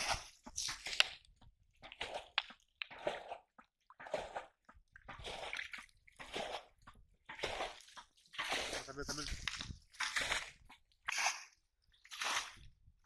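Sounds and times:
muddy water squelching and sloshing: 0.0s - 13.0s.

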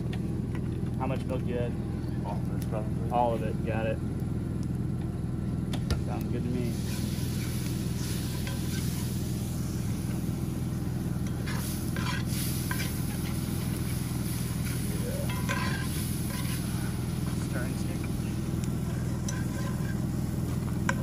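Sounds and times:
low mechanical hum: 0.0s - 21.0s
spatula scraping skillet: 6.7s - 10.1s, 11.2s - 21.0s
milk sizzling in a skillet: 6.7s - 21.0s.

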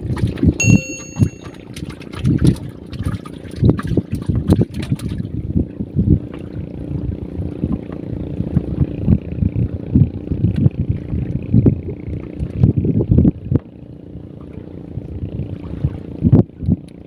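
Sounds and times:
wind buffeting microphone: 3.5s - 13.6s.

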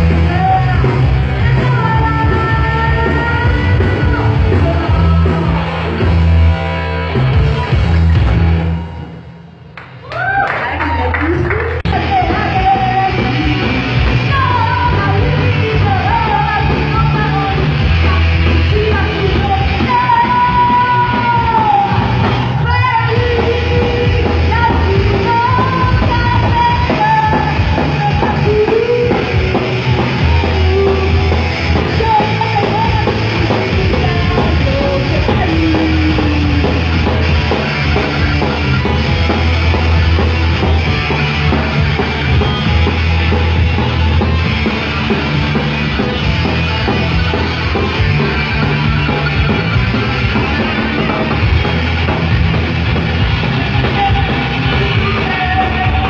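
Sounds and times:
woman singing: 0.0s - 5.6s, 11.2s - 37.4s, 53.6s - 56.0s
heavy metal band playing: 0.0s - 9.7s, 10.8s - 56.0s.

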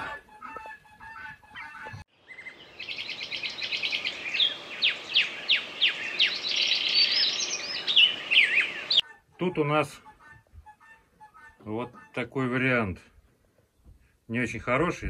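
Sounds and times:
small birds chirping: 1.9s - 9.2s.

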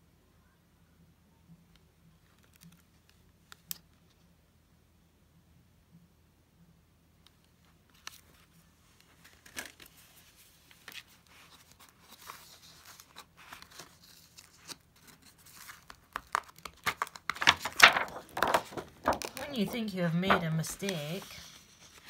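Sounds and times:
paper pages rustling: 7.9s - 22.0s.

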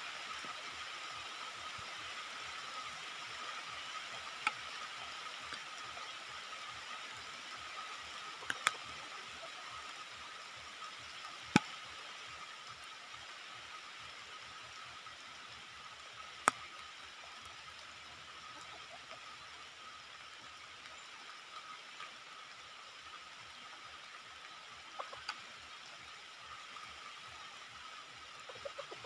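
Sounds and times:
outdoor hiss: 0.0s - 29.0s
sharp clicks: 8.4s - 8.8s.

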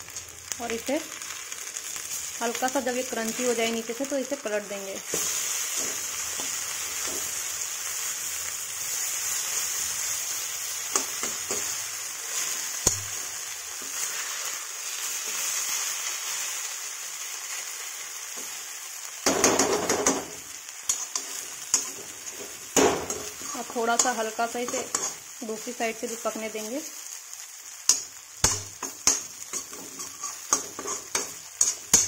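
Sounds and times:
paste sizzling in oil: 0.0s - 32.0s
spatula scraping pan: 20.9s - 25.3s, 27.9s - 32.0s
metal spatula clicking on pan: 27.9s - 32.0s.

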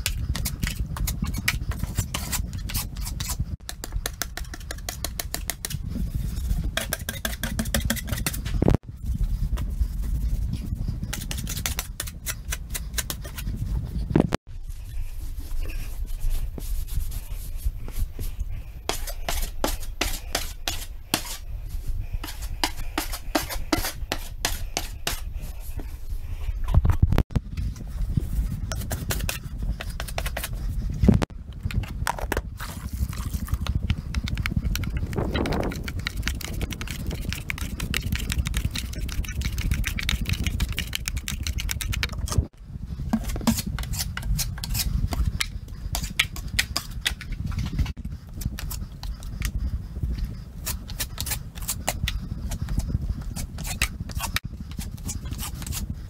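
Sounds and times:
taping knife scraping compound: 0.0s - 26.1s, 27.6s - 56.0s
steady low rumble: 8.2s - 56.0s
hand tool rubbing drywall: 15.0s - 26.0s.

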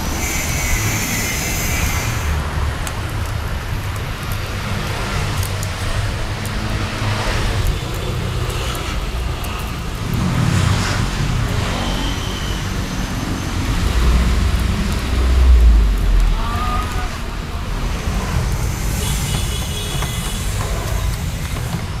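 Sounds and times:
traffic hum: 0.0s - 22.0s
vehicle passing with low rumble: 9.9s - 19.0s.

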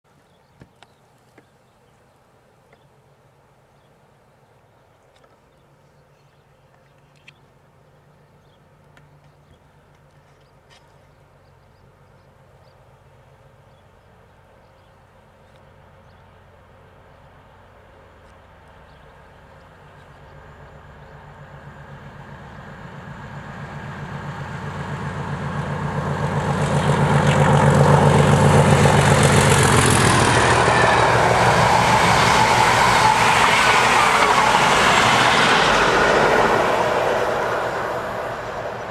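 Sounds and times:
diesel locomotive engine: 11.2s - 38.9s
train wheels rumbling on rails: 19.6s - 38.9s.

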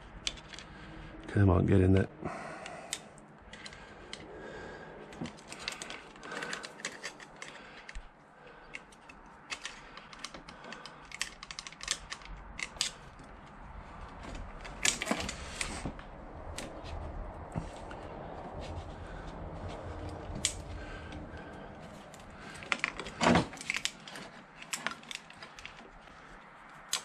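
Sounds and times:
small metallic clicks and taps: 8.7s - 13.3s.

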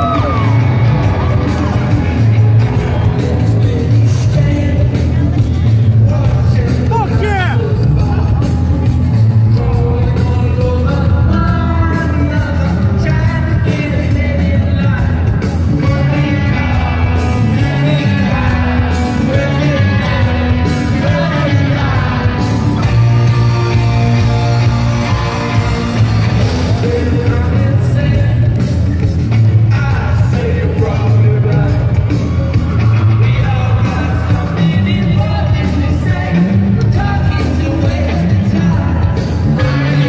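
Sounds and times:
drums: 0.0s - 40.0s
electric guitars: 0.0s - 40.0s
person singing into a microphone: 2.8s - 23.2s, 29.5s - 40.0s.

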